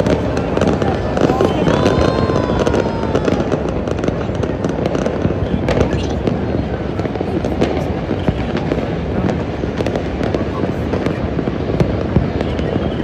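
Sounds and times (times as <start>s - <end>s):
fireworks bangs: 0.0s - 13.0s
fireworks crackling and popping: 0.0s - 13.0s.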